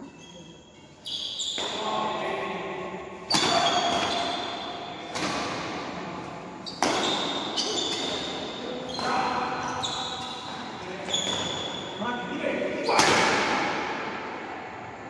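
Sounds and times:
racket hitting shuttlecock: 3.2s - 8.4s, 12.9s - 14.2s.

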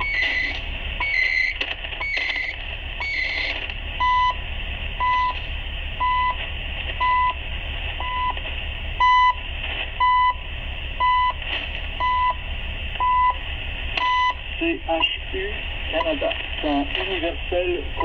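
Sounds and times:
short radio beeps: 0.0s - 4.3s
radio static hiss: 0.0s - 18.0s.

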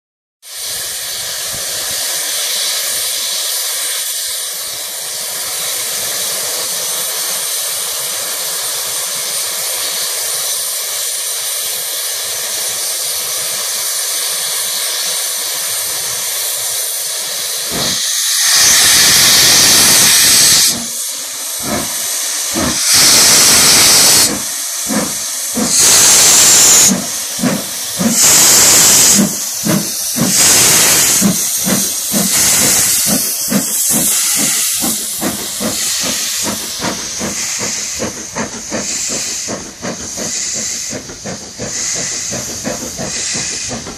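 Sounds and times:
steam hissing: 0.4s - 43.9s
steam locomotive chuffing: 0.5s - 43.9s.

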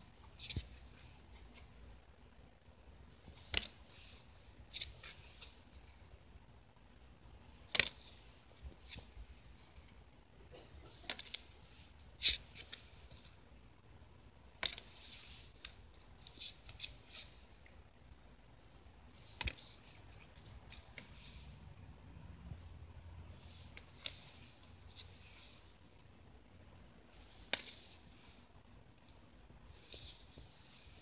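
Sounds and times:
trading cards snapping and rustling: 3.2s - 3.8s, 7.7s - 9.1s, 27.3s - 28.0s.

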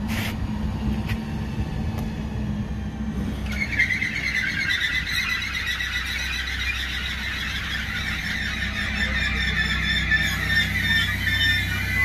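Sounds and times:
train equipment humming: 0.0s - 12.0s
high-pitched squeal: 3.2s - 12.0s
hiss: 10.2s - 12.0s.

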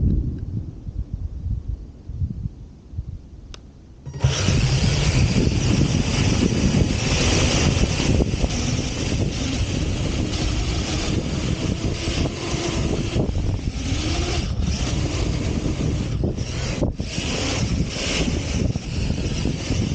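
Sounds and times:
wind over microphone: 0.0s - 19.9s
faint motor whine: 4.0s - 19.9s
tyres churning sand: 4.1s - 19.9s.

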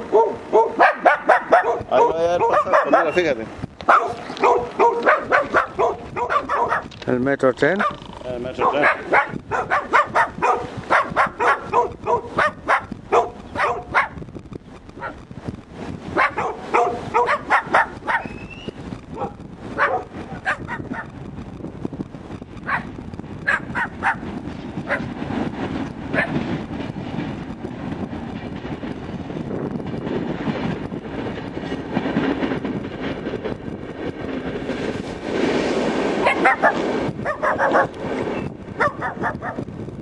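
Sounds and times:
dogs barking: 0.0s - 6.9s, 7.7s - 14.2s, 15.0s - 15.2s, 16.1s - 18.4s, 19.1s - 21.2s, 22.6s - 25.2s, 26.1s - 26.4s, 36.2s - 38.0s, 38.8s - 39.7s
passing train rumble: 0.0s - 40.0s.

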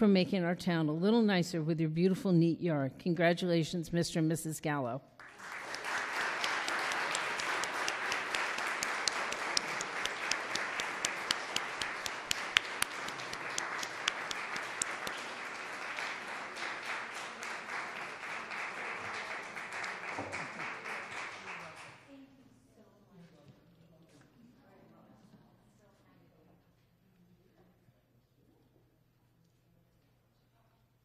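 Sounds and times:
audience applauding: 5.2s - 22.0s.

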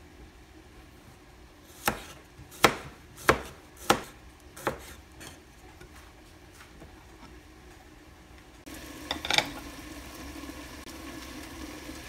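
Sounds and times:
knife chopping on cutting board: 1.7s - 5.4s.

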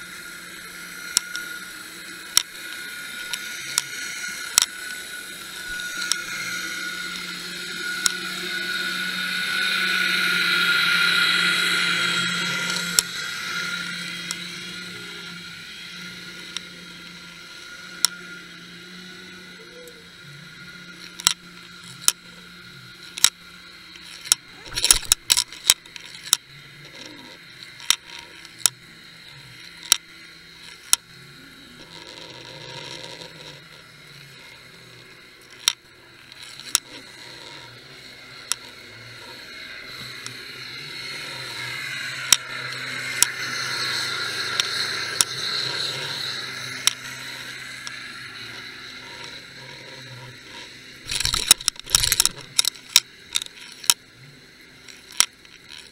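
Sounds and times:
faint steady hum: 0.0s - 55.9s
underwater clicks and knocks: 51.1s - 52.7s.

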